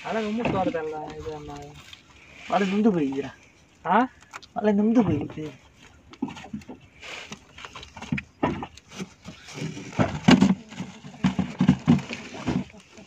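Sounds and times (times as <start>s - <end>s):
knocks and clatter on boat deck: 9.8s - 12.7s.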